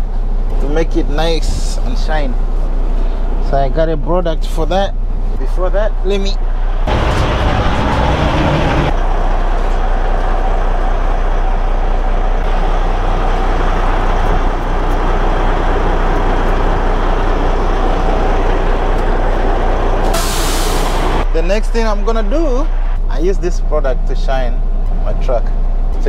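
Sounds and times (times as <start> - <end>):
diesel truck engine idling: 0.0 - 26.0.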